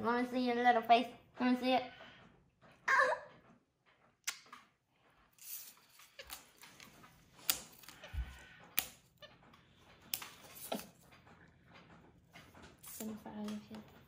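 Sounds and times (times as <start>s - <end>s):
scratching: 4.9s - 14.0s.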